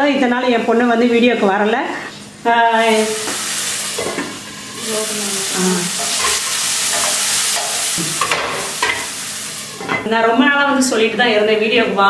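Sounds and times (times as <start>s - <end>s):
vegetables sizzling in oil: 2.6s - 10.9s.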